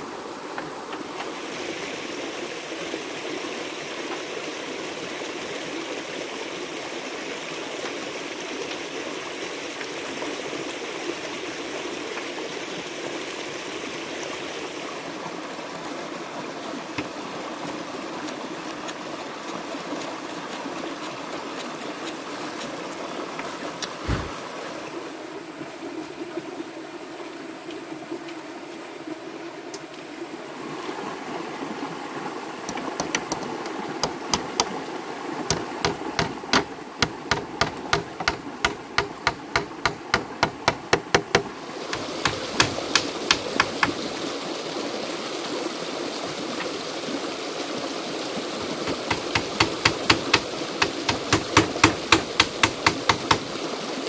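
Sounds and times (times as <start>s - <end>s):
stream over rocks: 0.0s - 54.0s
tool hammering on bamboo: 32.7s - 34.8s, 35.5s - 44.1s, 48.8s - 53.6s.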